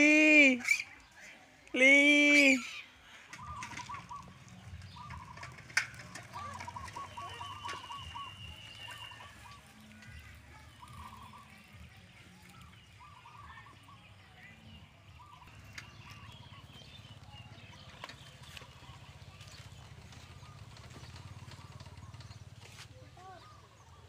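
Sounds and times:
rapid pulsing animal calls: 3.4 - 10.0.

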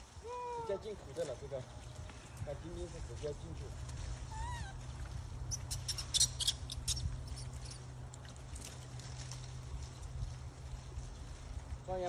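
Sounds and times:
steady low background hum: 0.0 - 12.0
monkey call rising and falling: 4.3 - 4.8, 5.5 - 7.6
high squeaks and chirps: 5.5 - 7.9.

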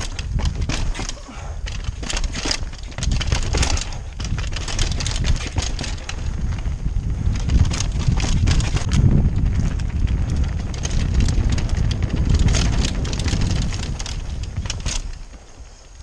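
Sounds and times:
bike knocking and rattling: 0.0 - 16.0
tyres crunching over stones: 0.0 - 16.0
wind on camera microphone: 0.0 - 16.0.

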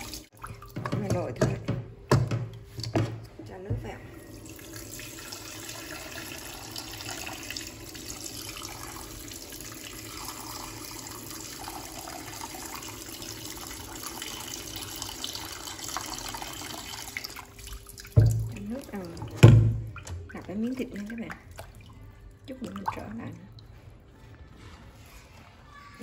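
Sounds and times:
tap water splashing over meat: 15.2 - 23.3.

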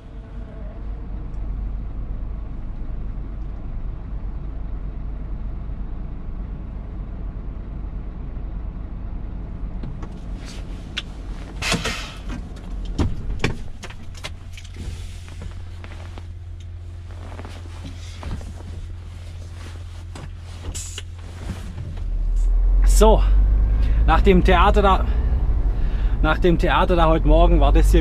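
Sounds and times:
truck engine drone: 0.0 - 28.0
short hiss: 11.6 - 12.3.

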